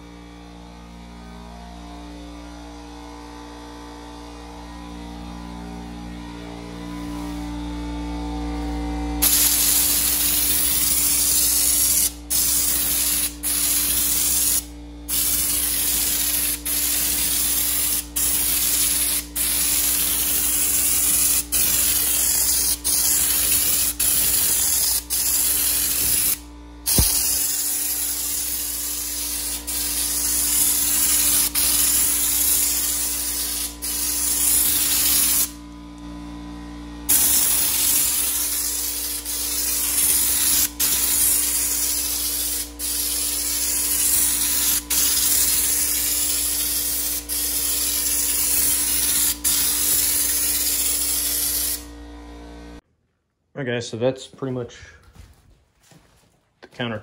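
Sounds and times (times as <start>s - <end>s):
spray gun hissing: 9.2s - 35.6s, 37.1s - 51.9s.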